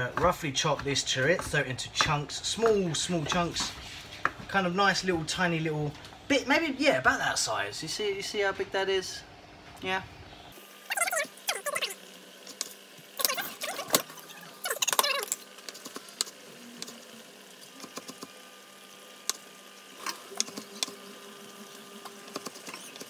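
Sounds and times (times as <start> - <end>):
knife chopping on wooden board: 0.0 - 4.4.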